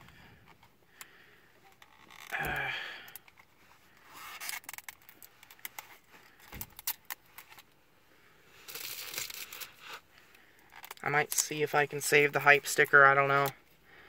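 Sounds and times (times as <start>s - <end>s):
plastic crinkling: 8.6s - 10.0s.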